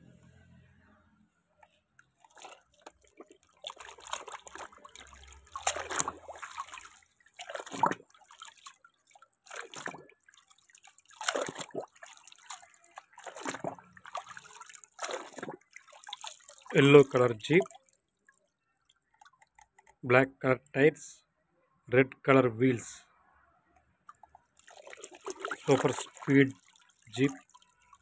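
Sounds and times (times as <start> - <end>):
water splashing and dripping: 2.1 - 20.0, 24.1 - 28.0.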